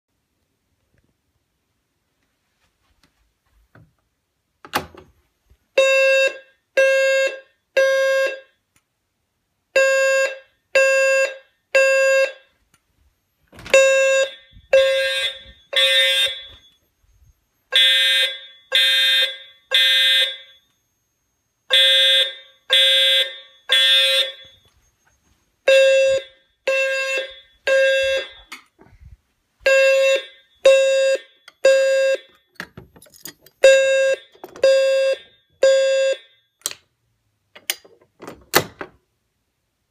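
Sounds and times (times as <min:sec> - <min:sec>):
fire alarm horns blasting: 0:05.8 - 0:08.6, 0:09.8 - 0:12.6, 0:13.7 - 0:28.5, 0:29.7 - 0:32.5, 0:33.6 - 0:36.5
higher-pitched alarm horn: 0:13.8 - 0:16.8, 0:21.7 - 0:24.7, 0:25.7 - 0:28.5.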